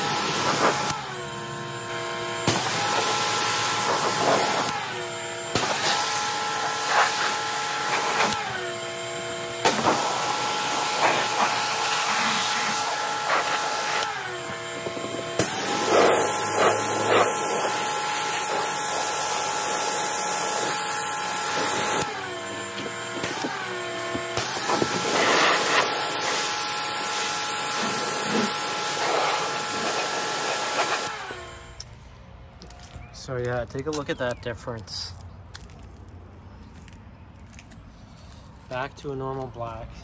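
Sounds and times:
pressure washer motor whine: 0.0 - 32.7
water jet hissing: 15.4 - 22.0.

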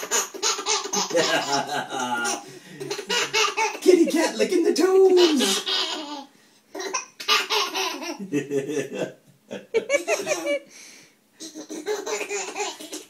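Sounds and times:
baby giggling: 0.0 - 4.1, 5.1 - 8.8, 9.6 - 10.7, 11.4 - 13.0
person laughing: 1.0 - 4.3, 8.1 - 10.7.

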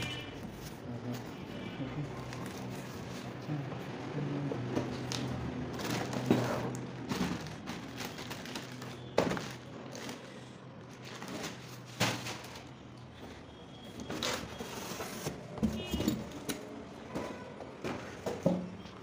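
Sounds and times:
packaging rustling and scraping: 4.9 - 18.5.

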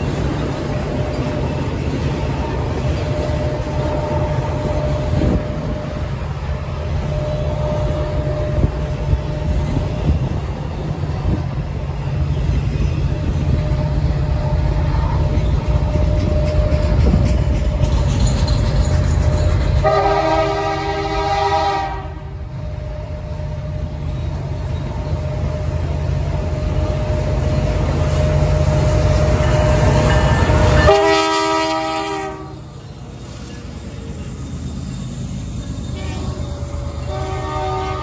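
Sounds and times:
freight train rumbling past: 0.0 - 38.0
locomotive air horn: 7.0 - 9.5, 19.8 - 22.4, 30.8 - 32.7, 35.9 - 38.0.

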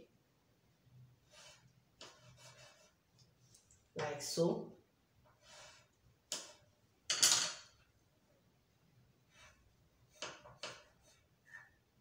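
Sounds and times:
pencil drawing on paper: 1.2 - 3.0, 9.2 - 11.7.

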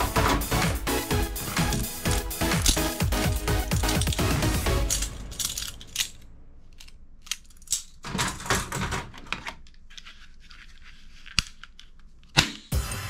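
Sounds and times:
plastic toy guns clattering: 1.5 - 9.7.

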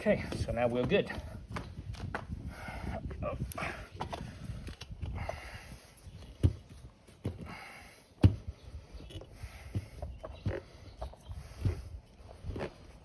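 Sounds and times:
dull thumps: 0.2 - 2.3, 6.3 - 7.6, 8.2 - 8.6.

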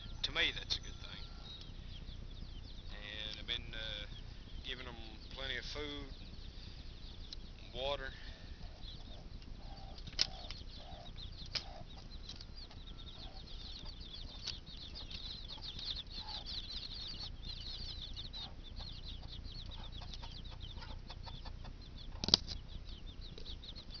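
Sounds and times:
chicks peeping: 0.0 - 24.0
wire cage clicks: 22.2 - 22.6.

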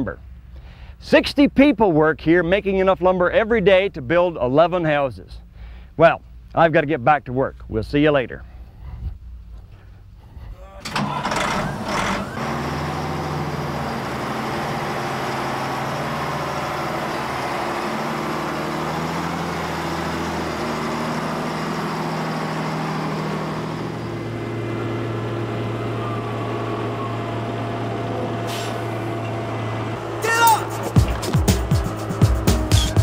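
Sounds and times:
wheel loader diesel engine: 10.6 - 33.0.

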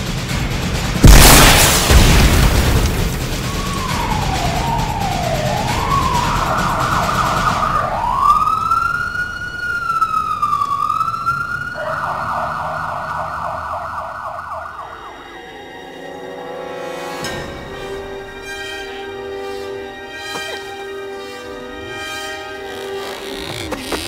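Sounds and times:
loud explosion boom: 1.0 - 8.1
emergency siren wailing: 2.9 - 17.1.

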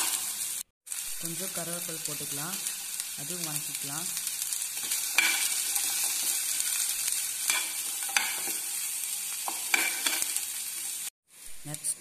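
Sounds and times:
aromatics sizzling in hot oil: 0.0 - 12.0.

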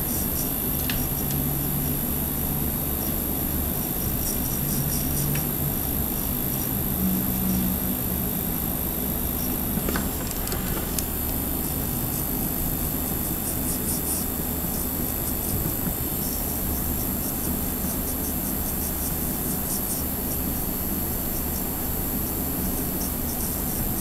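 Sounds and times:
electric nail drill humming: 0.0 - 24.0.

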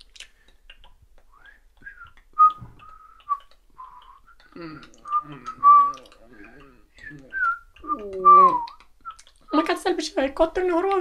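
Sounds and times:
person whistling: 1.3 - 6.0, 7.0 - 9.2
person speaking: 4.4 - 8.8.

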